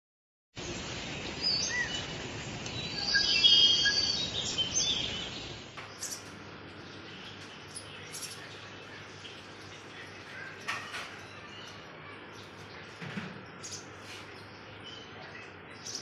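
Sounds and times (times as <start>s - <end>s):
birds chirping: 0.6s - 16.0s
outdoor ambience hiss: 0.6s - 16.0s.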